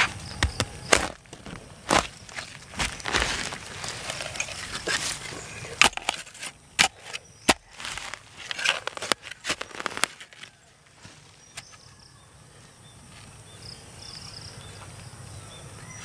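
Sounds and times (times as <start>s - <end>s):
spade knocking ground: 0.0s - 10.6s
metal spade scraping soil: 1.9s - 10.6s.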